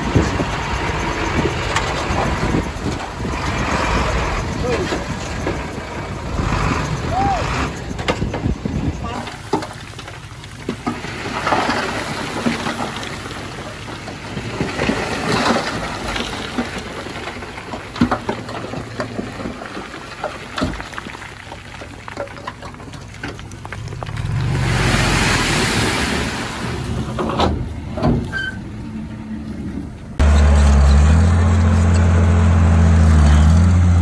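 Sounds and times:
heavy diesel engine running: 0.0s - 14.9s, 28.8s - 34.0s
loose stone clattering and sliding: 9.2s - 24.6s.

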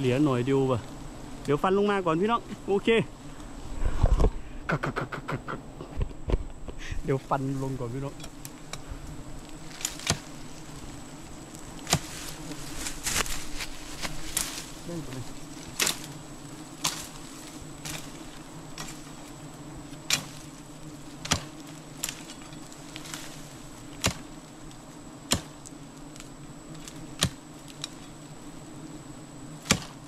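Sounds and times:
bees buzzing: 0.0s - 30.0s
blade chopping woody stem: 9.8s - 10.3s, 11.8s - 12.2s, 15.7s - 16.1s, 21.2s - 22.2s, 24.0s - 24.3s, 25.3s - 25.7s, 26.8s - 28.0s, 29.6s - 30.0s.

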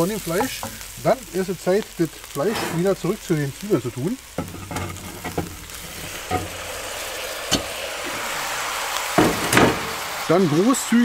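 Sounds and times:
meat sizzling in hot fat: 0.0s - 11.0s
pot clatter: 0.3s - 0.9s, 4.4s - 10.3s
sharp knocks: 9.2s - 10.0s.

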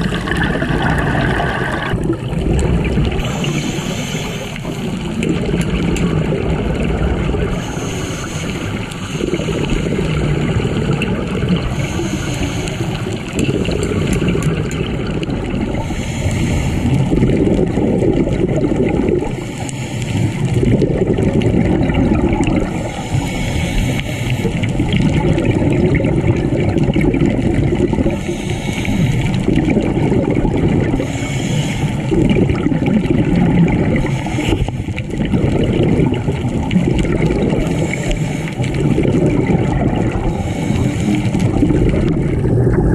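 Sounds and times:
exhaust bubbles gurgling: 0.0s - 42.9s
steady underwater rumble: 0.0s - 42.9s
regulator breathing hiss: 3.2s - 5.2s, 7.5s - 10.2s, 11.7s - 13.3s, 15.8s - 17.1s, 19.4s - 20.4s, 22.6s - 24.7s, 28.1s - 29.4s, 31.0s - 32.1s, 34.0s - 35.0s, 37.6s - 38.7s, 40.2s - 41.6s.

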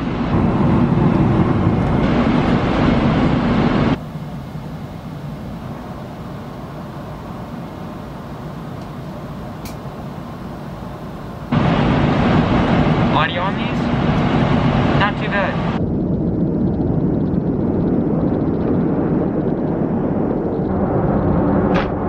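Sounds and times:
airplane cabin roar: 0.0s - 22.0s.

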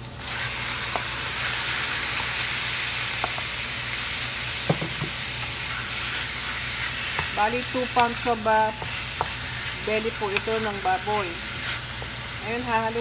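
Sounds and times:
meat sizzling in a wok: 0.0s - 13.0s
wooden spoon knocking: 4.7s - 5.2s.

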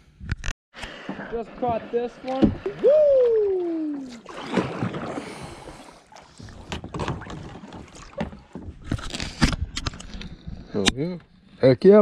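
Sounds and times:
paddle splashing in water: 0.8s - 10.0s.

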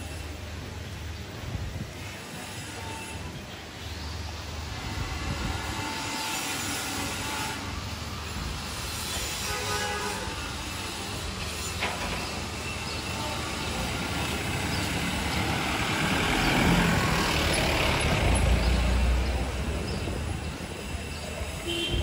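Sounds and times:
street noise: 0.0s - 22.0s
heavy vehicle passing: 13.7s - 22.0s.

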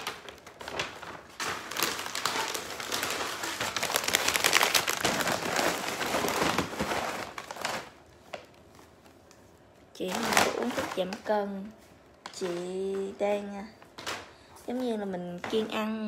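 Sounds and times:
packaging crinkling: 0.0s - 11.4s.

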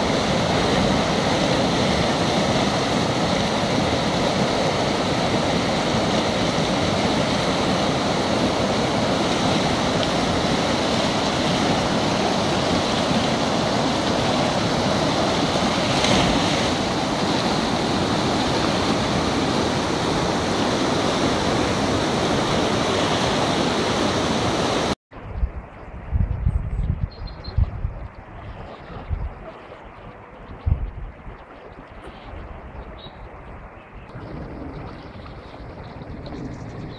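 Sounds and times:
water rushing through weir: 0.0s - 25.0s.

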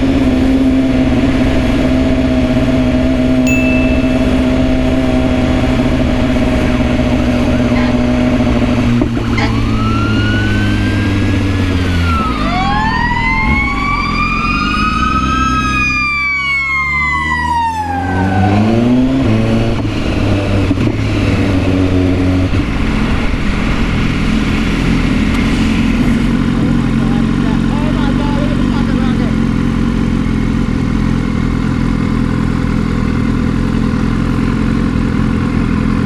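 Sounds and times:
siren wailing: 9.3s - 19.6s
motorcycle engine running: 19.4s - 36.0s.

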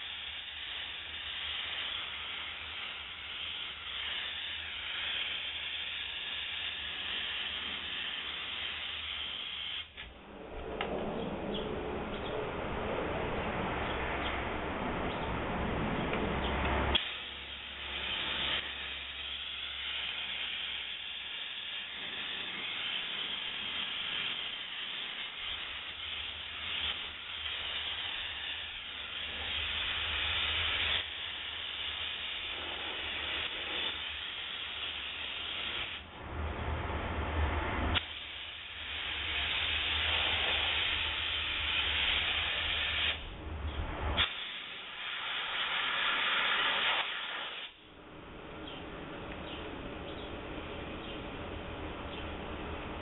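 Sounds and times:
steam cleaner hissing: 0.0s - 10.1s, 16.8s - 36.1s, 37.9s - 43.2s, 44.2s - 47.8s.

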